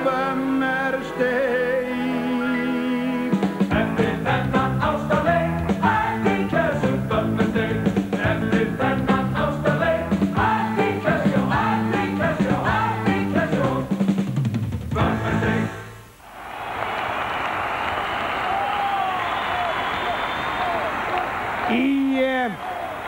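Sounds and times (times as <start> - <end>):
electric bass guitar: 3.7 - 13.9.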